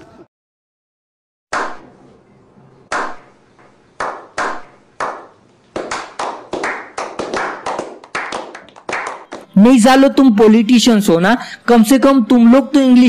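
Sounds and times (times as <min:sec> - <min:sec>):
people clapping: 0:04.0 - 0:09.6.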